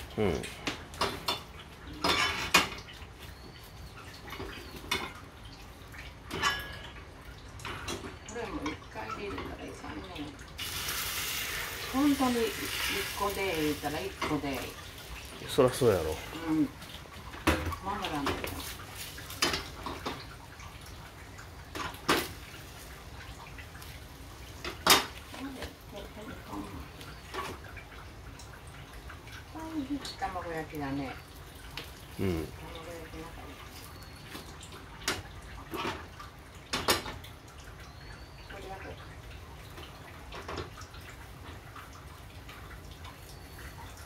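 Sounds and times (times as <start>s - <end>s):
dishes and utensils clinking: 1.0s - 2.8s, 6.3s - 7.0s.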